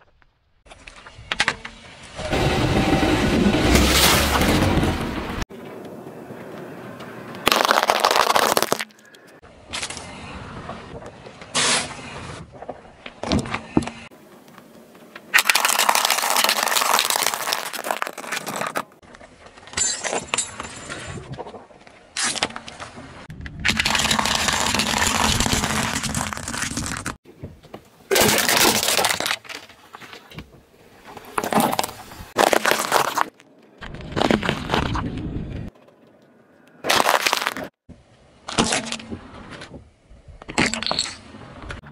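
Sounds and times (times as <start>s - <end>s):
tyre crushing plastic objects: 7.4s - 9.0s, 15.3s - 19.0s, 23.7s - 27.2s, 28.1s - 30.2s, 31.2s - 35.0s, 36.8s - 37.8s.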